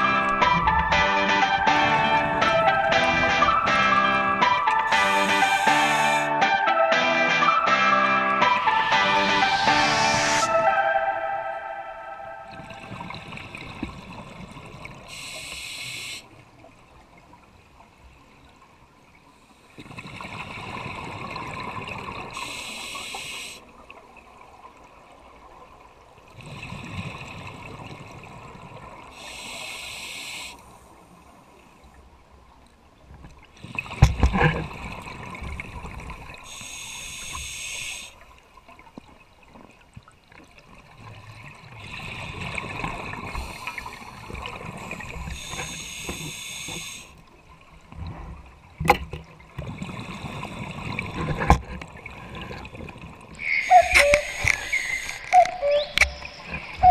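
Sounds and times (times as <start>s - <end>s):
regulator hiss: 4.9s - 6.3s, 15.1s - 16.3s, 22.4s - 23.6s, 29.2s - 30.8s, 36.5s - 38.2s, 43.3s - 47.2s, 53.5s - 55.2s
exhaled bubbles gurgling: 47.9s - 56.9s.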